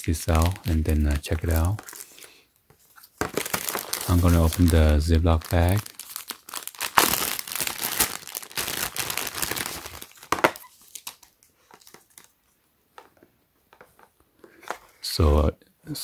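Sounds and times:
foil bag crinkling: 0.0 - 2.4, 3.2 - 12.3.

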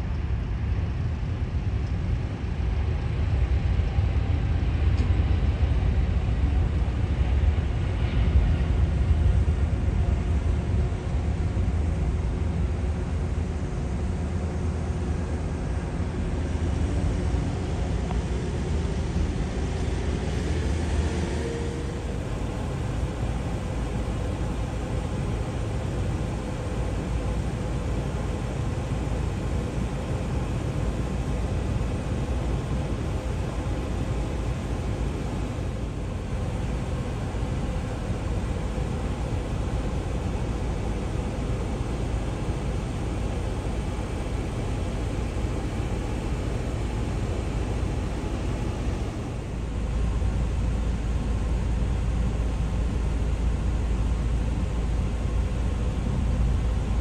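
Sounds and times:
jet engines deep rumble: 0.0 - 57.0
faint rising whine: 14.6 - 57.0.

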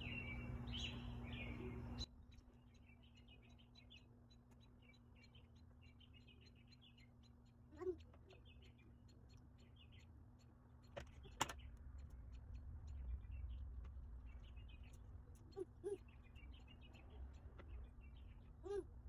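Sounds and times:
small birds chirping: 0.0 - 19.0
low rumble: 11.6 - 19.0.

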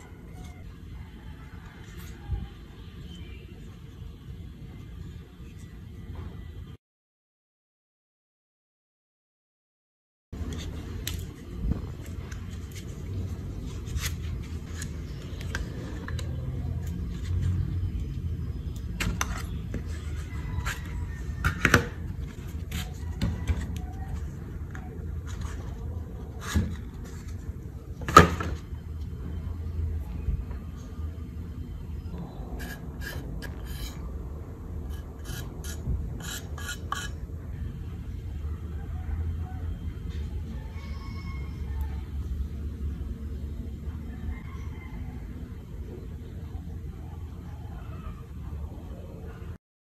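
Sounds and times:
metal knife clicking and scraping: 32.6 - 34.1, 34.9 - 37.2.

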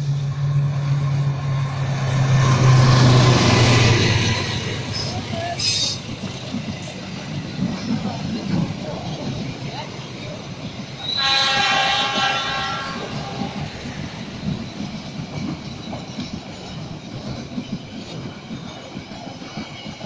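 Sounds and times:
train wheels rumbling on rails: 0.0 - 20.0
train horn: 11.0 - 13.9.

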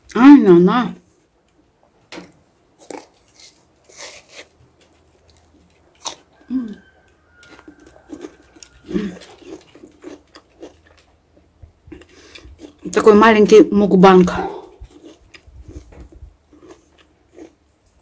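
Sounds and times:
person chewing crunchy apple: 2.8 - 13.0, 14.2 - 18.0.

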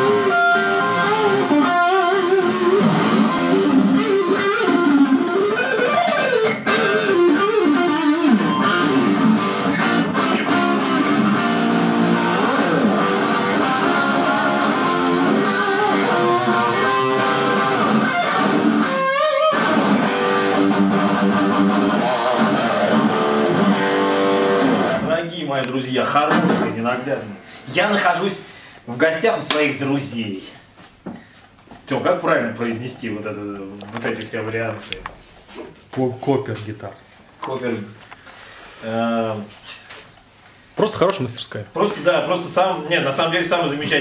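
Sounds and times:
electric guitar lead: 0.0 - 25.2.

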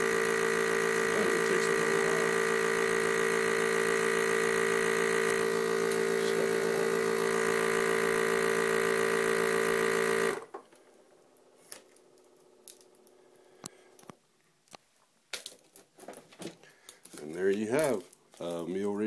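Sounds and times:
vacuum sealer pump humming: 0.0 - 14.1.

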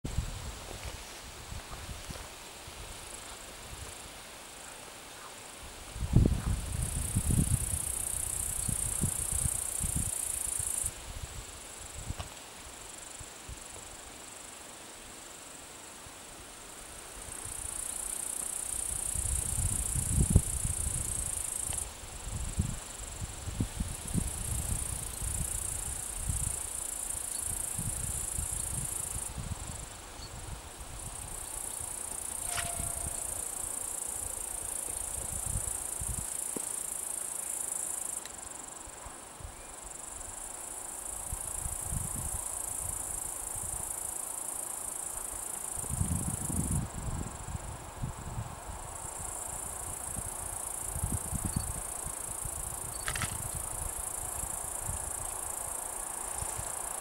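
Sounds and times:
wind gusts on microphone: 0.0 - 4.2, 5.6 - 12.3, 18.8 - 33.4, 34.6 - 36.3, 41.2 - 43.9, 45.8 - 55.7
insects buzzing: 0.1 - 57.0.

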